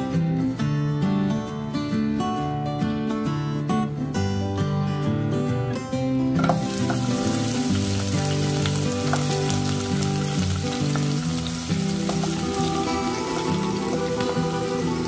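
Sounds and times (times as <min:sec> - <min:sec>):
acoustic guitar background music: 0:00.0 - 0:15.0
onion sizzling in hot oil: 0:06.4 - 0:15.0.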